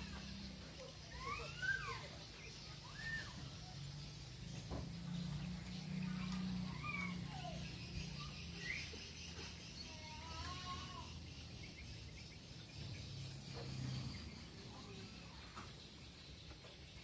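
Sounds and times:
high insect-like hiss: 3.8s - 16.4s.

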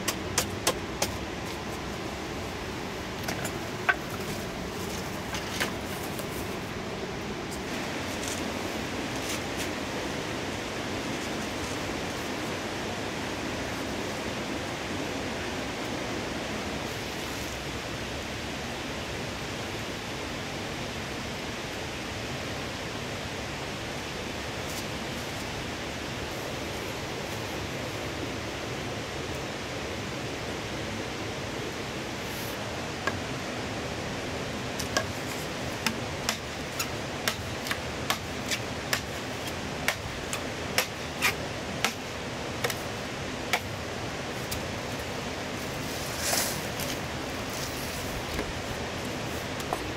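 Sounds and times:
knife striking bamboo: 0.0s - 1.2s, 34.8s - 42.8s
river rushing: 0.0s - 49.9s.

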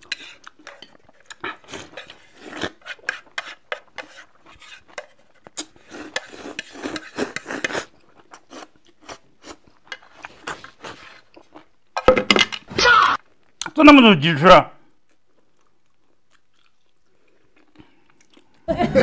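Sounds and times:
noodles slurped: 0.0s - 11.3s.

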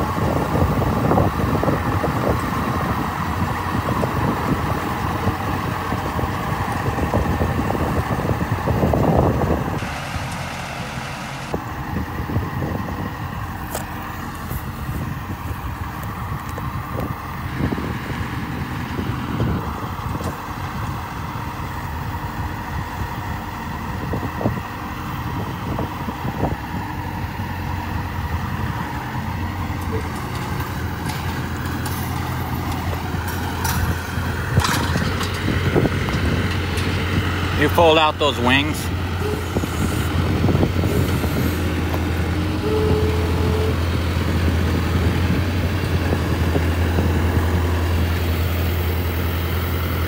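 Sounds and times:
sprayer engine running: 35.9s - 44.2s.

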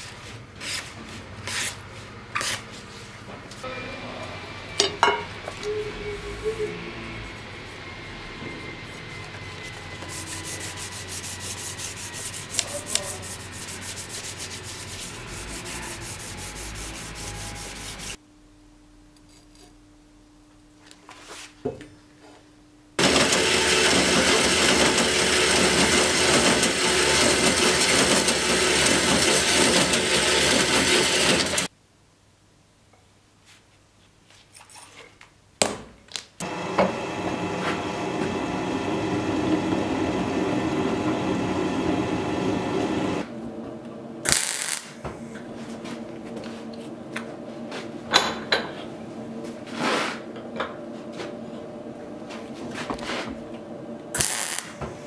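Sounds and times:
low steady hum: 3.6s - 23.0s.

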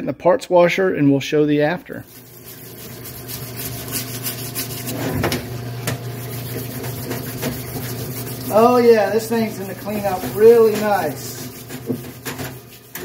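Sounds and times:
pump motor humming: 2.2s - 13.0s
scrubbing clicks and rubbing: 9.9s - 13.0s.

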